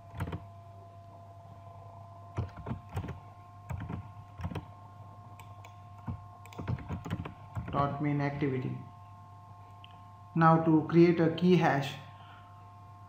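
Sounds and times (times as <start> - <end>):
faint electrical hum: 0.0 - 13.0
computer key clicks: 5.4 - 7.8.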